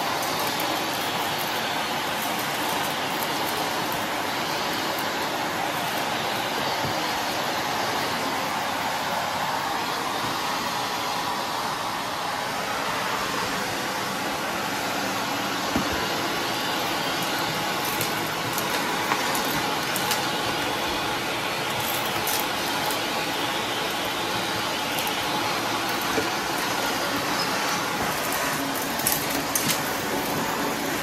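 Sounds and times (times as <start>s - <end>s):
debris clicking in hose: 0.0s - 7.1s, 16.6s - 31.0s
vacuum cleaner running: 0.0s - 31.0s.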